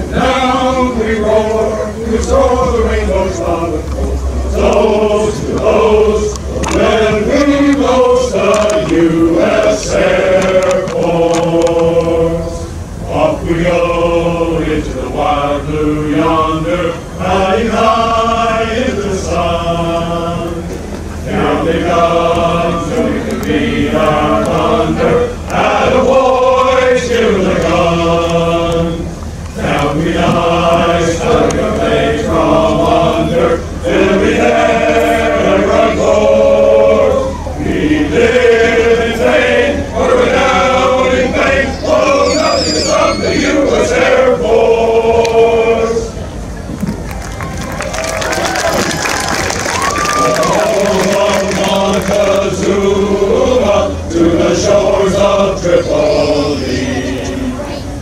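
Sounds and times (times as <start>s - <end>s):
male choir singing: 0.0s - 46.2s, 50.1s - 57.8s.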